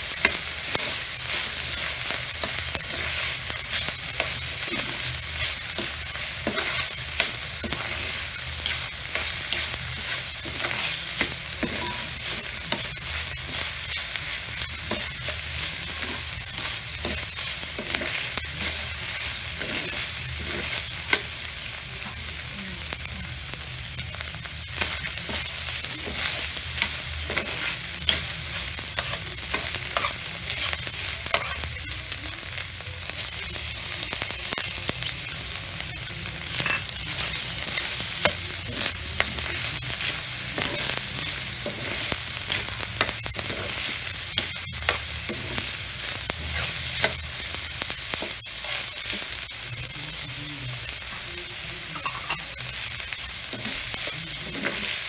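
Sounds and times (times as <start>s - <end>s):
meat sizzling in a wok: 0.0s - 55.0s
metal spoon scraping a pan: 0.2s - 21.3s, 24.8s - 31.7s.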